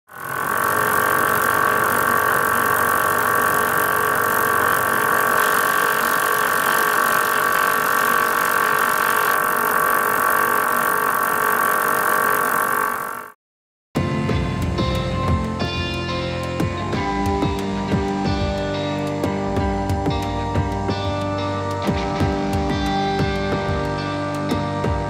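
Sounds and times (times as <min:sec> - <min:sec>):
label printing machine whine: 0:00.1 - 0:13.3
mechanical roller noise: 0:00.1 - 0:13.4.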